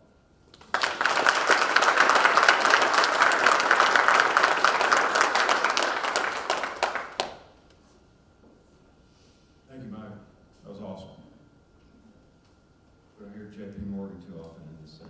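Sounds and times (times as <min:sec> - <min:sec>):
audience applauding: 0:00.5 - 0:07.5.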